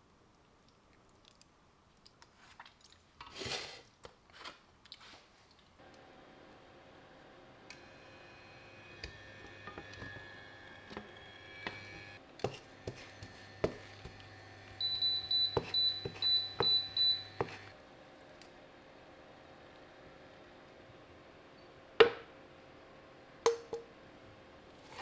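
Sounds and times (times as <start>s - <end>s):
steady hum: 5.8s - 18.0s
high whine: 7.7s - 12.2s
wooden spatula scraping pan: 12.4s - 14.2s.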